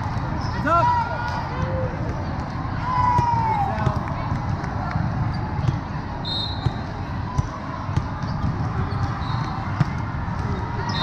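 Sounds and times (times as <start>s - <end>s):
volleyballs struck and bouncing: 1.2s - 6.0s, 6.6s - 11.0s
referee's whistle: 6.2s - 6.8s, 9.2s - 9.6s.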